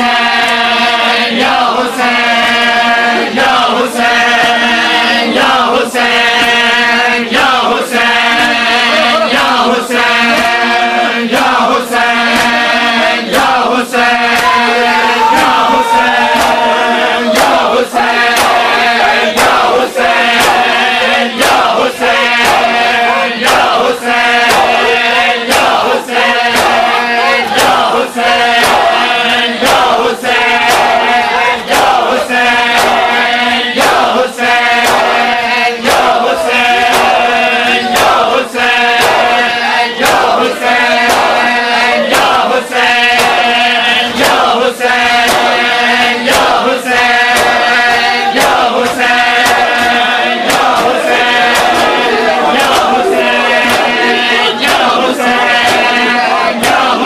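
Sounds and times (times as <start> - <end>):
men chanting in unison: 0.0 - 57.0
chest-beating slaps: 12.2 - 57.0.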